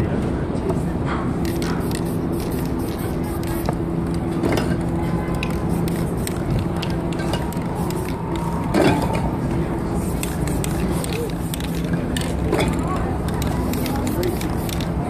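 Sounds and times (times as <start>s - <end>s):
street din: 0.0s - 15.0s
spray paint can hissing: 1.4s - 3.8s, 5.3s - 8.8s, 9.9s - 12.4s, 13.2s - 15.0s.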